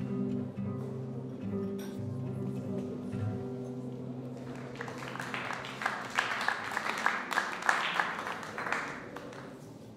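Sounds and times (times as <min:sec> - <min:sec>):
acoustic guitar notes: 0:00.0 - 0:04.4
audience applauding: 0:04.3 - 0:09.8.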